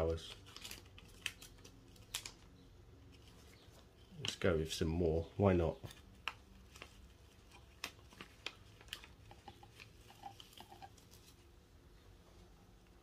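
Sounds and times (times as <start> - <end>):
plastic packet crinkling: 0.0 - 2.6, 5.9 - 11.5.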